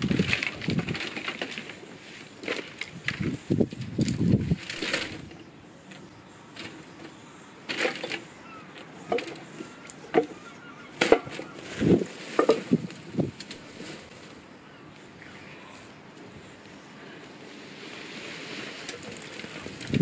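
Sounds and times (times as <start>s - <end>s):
dry sticks snapping and rustling: 0.0s - 15.1s.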